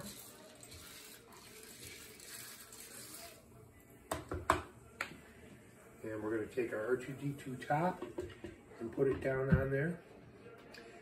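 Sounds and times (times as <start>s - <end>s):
popcorn kernels rattling: 0.0s - 3.4s.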